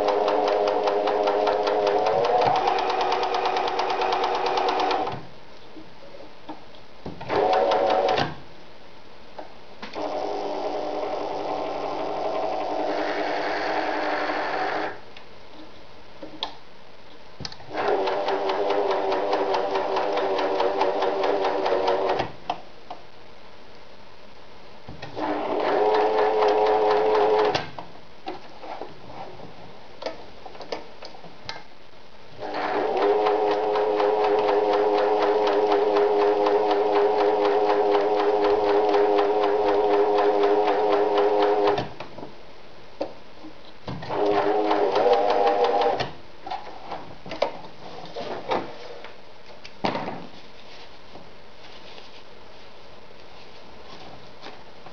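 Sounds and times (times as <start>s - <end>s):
sewing machine stitching: 0.0s - 5.2s, 7.3s - 8.3s, 10.0s - 15.0s, 17.7s - 22.4s, 25.1s - 27.7s, 32.4s - 42.0s, 44.0s - 46.2s.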